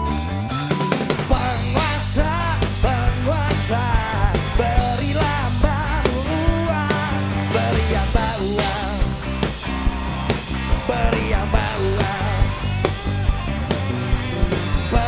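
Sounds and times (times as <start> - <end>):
drum kit hits: 0.0 - 15.0
man singing with vibrato: 1.2 - 9.2, 10.7 - 12.7, 14.6 - 15.0.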